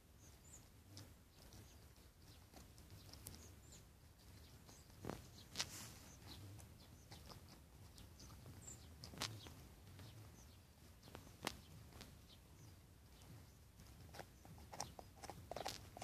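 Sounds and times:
dog gnawing a bone: 13.9s - 16.0s.

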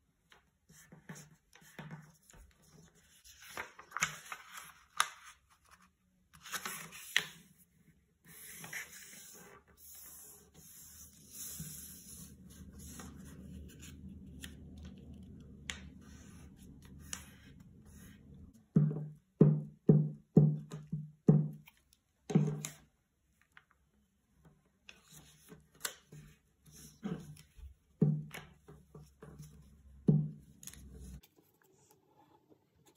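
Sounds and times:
paper rustling as folded: 1.2s - 7.5s, 8.3s - 17.6s
low steady hum: 10.6s - 18.8s.

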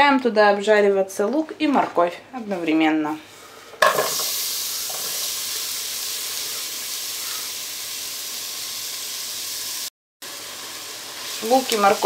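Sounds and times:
vegetables sizzling in oil: 3.8s - 12.0s.

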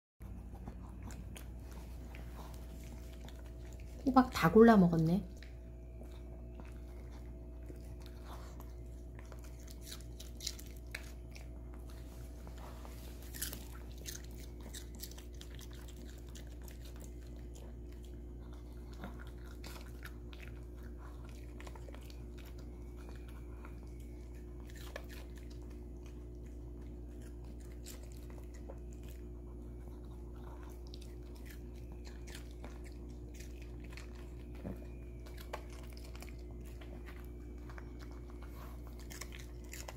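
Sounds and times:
dog crunching and chewing: 0.2s - 39.9s
faint steady hum: 0.2s - 39.9s.

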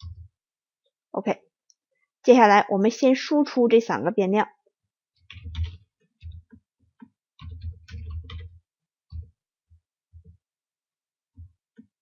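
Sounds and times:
computer keyboard typing: 5.2s - 9.4s.

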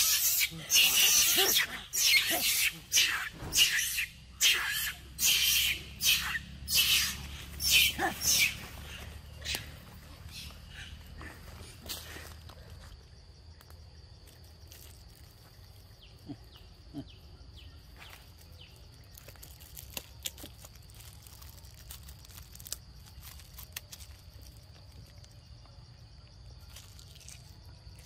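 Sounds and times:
high-pitched insect drone: 0.0s - 16.8s.

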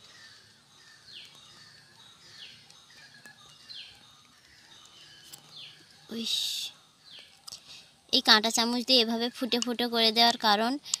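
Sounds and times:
bird calling: 0.0s - 7.9s.

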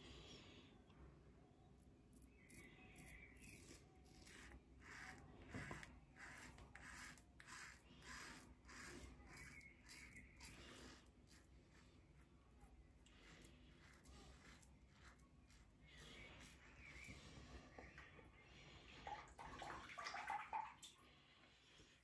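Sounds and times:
razor scraping stubble: 2.4s - 17.2s.

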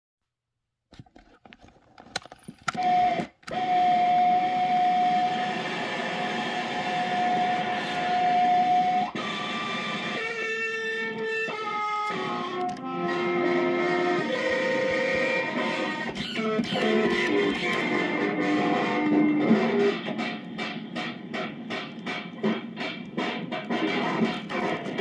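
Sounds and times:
tape clicks and crackles: 0.9s - 3.7s, 9.1s - 25.0s
steady held tone: 2.7s - 25.0s
stepped pitched notes: 7.1s - 25.0s.

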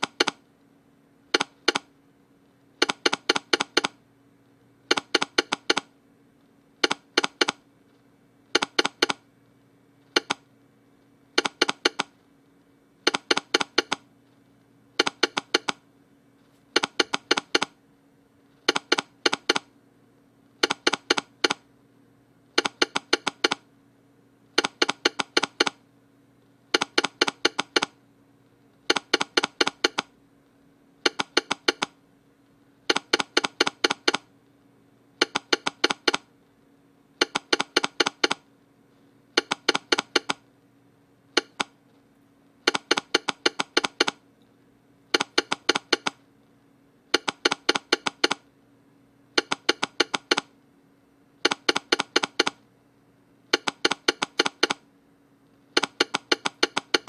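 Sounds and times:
telegraph sounder clicking: 42.7s - 44.2s, 49.4s - 50.5s.

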